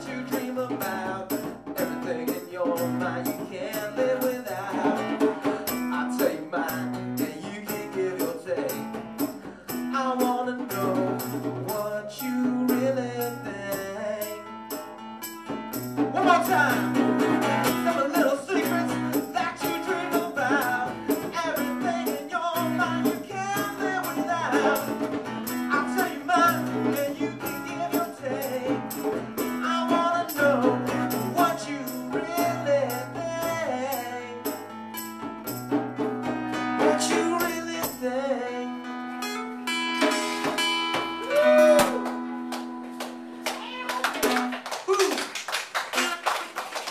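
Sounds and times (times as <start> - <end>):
man singing: 0.0 - 14.6, 16.0 - 34.8, 36.8 - 39.0, 41.2 - 42.1, 44.9 - 46.6
strummed acoustic guitar: 0.0 - 44.6.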